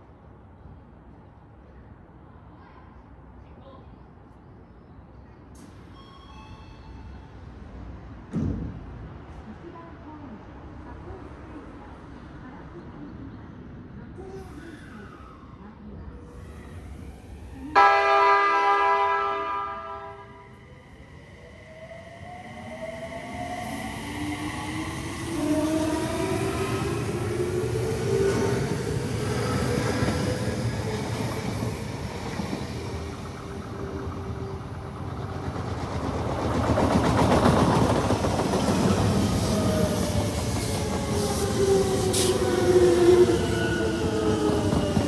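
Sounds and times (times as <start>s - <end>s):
train wheels clattering on rails: 31.0s - 41.5s.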